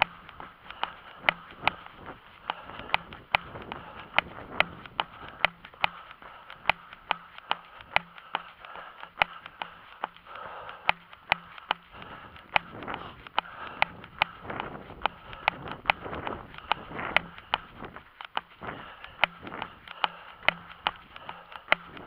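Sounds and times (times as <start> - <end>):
running footsteps on asphalt: 0.0 - 22.0.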